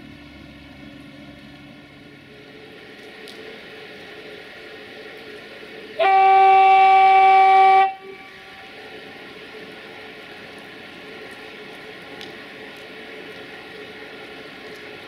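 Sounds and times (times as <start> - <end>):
locomotive horn blast: 6.0 - 8.7.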